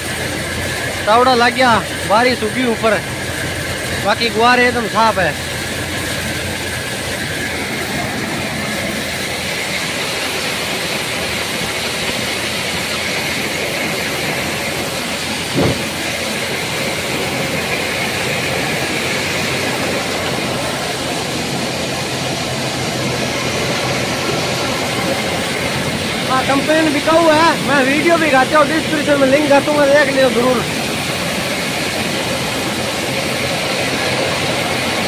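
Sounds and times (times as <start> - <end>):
thresher running: 0.0 - 35.0
brief thump: 15.6 - 15.9.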